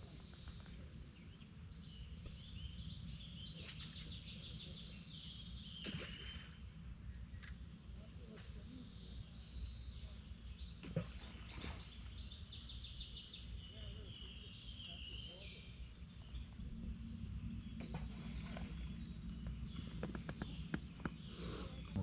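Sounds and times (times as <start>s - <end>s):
small birds chirping: 0.0s - 22.0s
low outdoor rumble: 13.5s - 22.0s.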